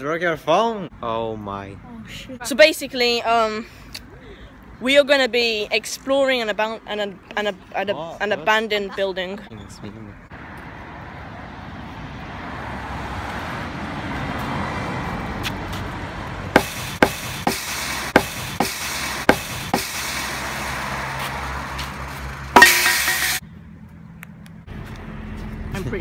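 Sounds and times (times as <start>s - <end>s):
road traffic noise: 0.0s - 26.0s
sledgehammer striking steel fence: 16.6s - 21.8s, 22.5s - 23.4s.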